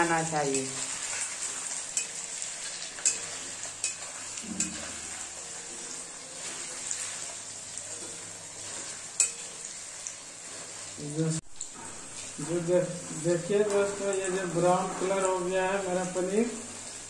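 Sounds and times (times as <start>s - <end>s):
cheese cubes sizzling in oil: 0.0s - 17.0s
metal spatula clinking on pan: 1.8s - 5.9s, 8.8s - 9.7s.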